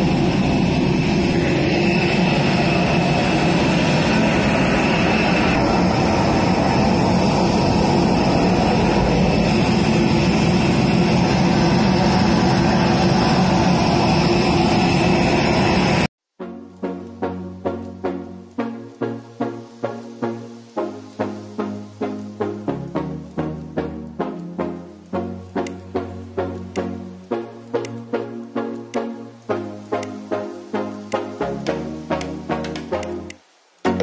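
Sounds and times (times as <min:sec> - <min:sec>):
high whine: 0:00.0 - 0:16.1
jet aircraft rumble: 0:00.0 - 0:16.1.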